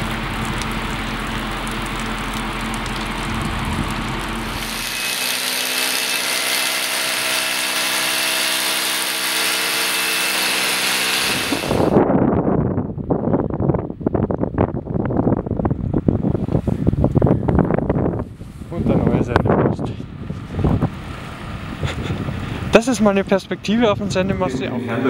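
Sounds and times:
electric power tool whining: 4.4 - 12.0.

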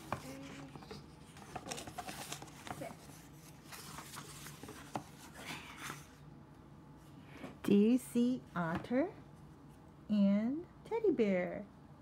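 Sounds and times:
book pages turning and rustling: 0.0 - 6.2.

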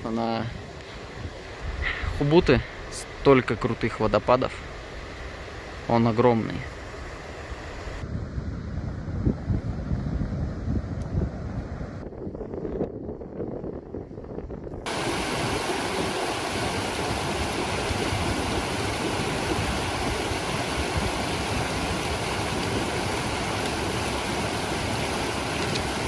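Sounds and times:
river rushing over rocks: 14.9 - 26.0.

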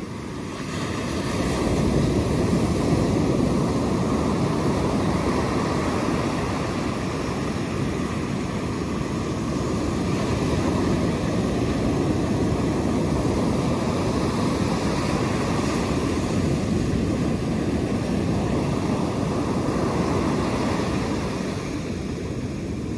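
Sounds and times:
ocean waves washing on beach: 0.0 - 22.9.

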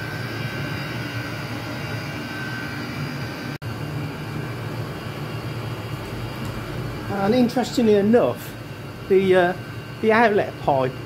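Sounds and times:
air heater burner and blower roar: 0.0 - 11.0
low hum: 0.0 - 11.0.

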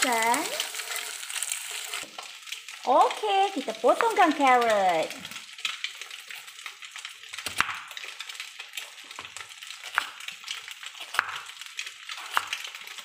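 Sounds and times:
knife slicing carrot: 11.0 - 11.5, 12.2 - 12.6.

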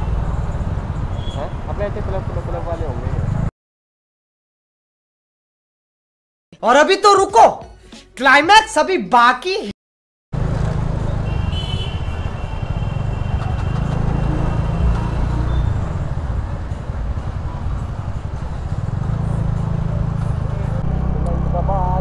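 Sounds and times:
wind: 10.4 - 22.0.

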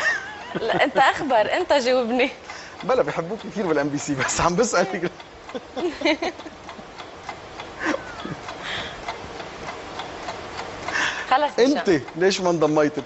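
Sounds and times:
low background noise: 0.0 - 13.0
person speaking: 0.6 - 6.0, 11.3 - 13.0.

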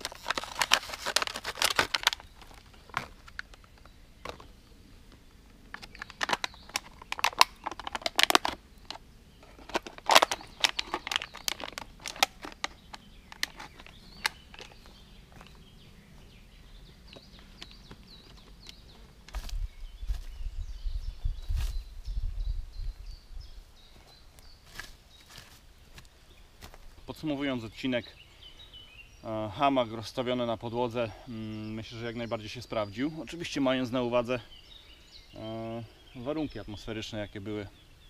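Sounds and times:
plastic bottle crinkling: 0.0 - 4.5, 5.7 - 15.5.

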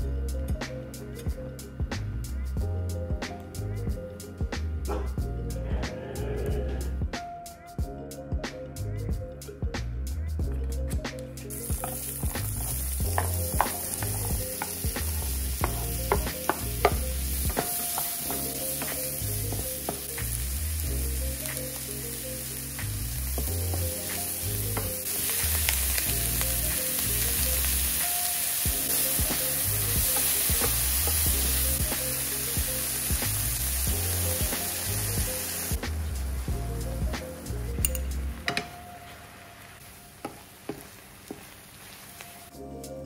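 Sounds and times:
vegetables sizzling in oil: 11.5 - 42.5.

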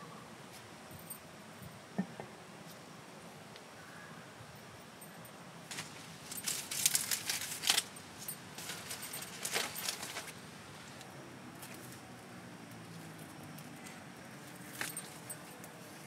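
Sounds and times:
crisp rustling: 5.7 - 10.4
light clinking: 12.7 - 15.8.

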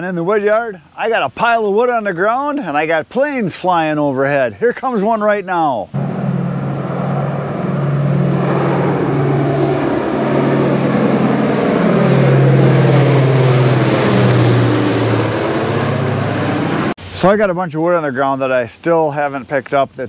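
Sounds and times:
propeller plane engines droning overhead: 5.8 - 17.0.

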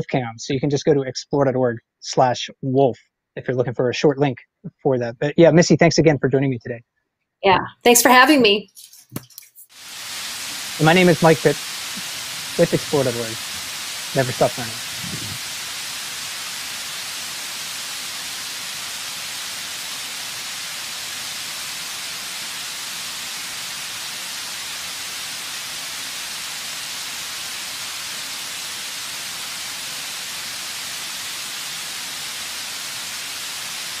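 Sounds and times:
water rushing over waterfall: 9.8 - 34.0.

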